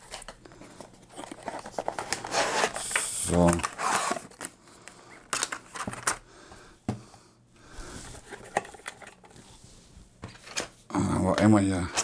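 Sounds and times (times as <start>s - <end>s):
cardboard and paper rustling: 0.0s - 6.2s.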